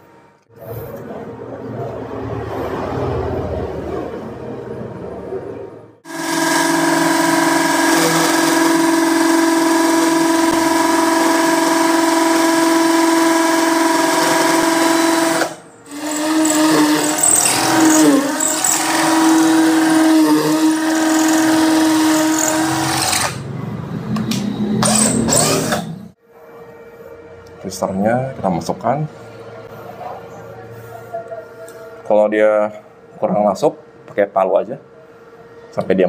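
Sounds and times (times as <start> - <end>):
cordless drill whining: 6.1 - 23.4, 24.8 - 26.0.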